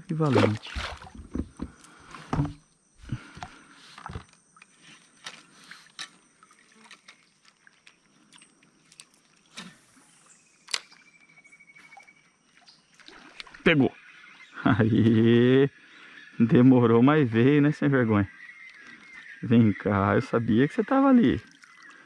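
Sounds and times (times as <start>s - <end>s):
soft thumps: 0.4s - 2.6s.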